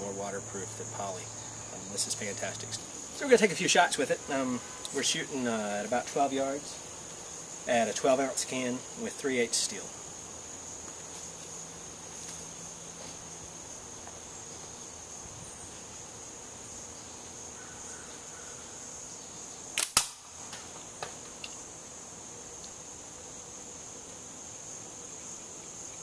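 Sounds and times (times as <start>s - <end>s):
insects droning: 0.0s - 26.0s
steel ball hitting a can: 19.8s - 20.3s
slingshot bands cracking: 19.8s - 20.7s.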